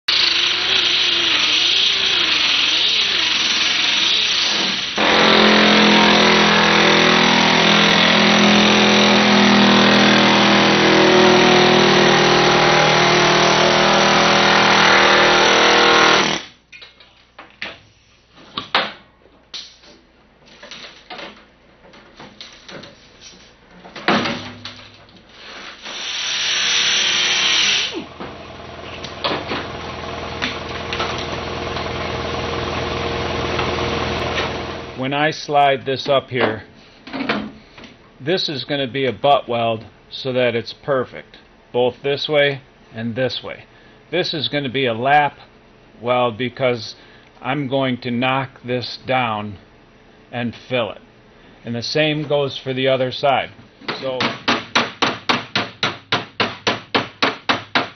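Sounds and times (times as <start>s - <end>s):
sander grinding metal: 0.1s - 16.4s, 25.8s - 28.1s
air hammer cutting sheet metal: 0.1s - 16.5s, 25.8s - 28.1s.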